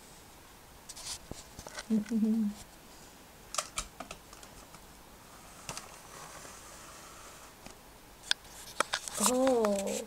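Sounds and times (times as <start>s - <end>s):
plastic toys rustling on carpet: 8.4s - 10.0s.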